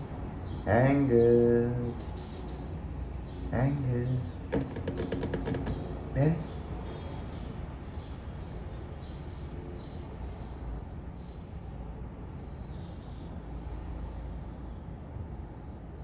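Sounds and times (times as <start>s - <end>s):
distant traffic rumble: 0.0s - 16.0s
faint bird chirps: 0.4s - 4.7s.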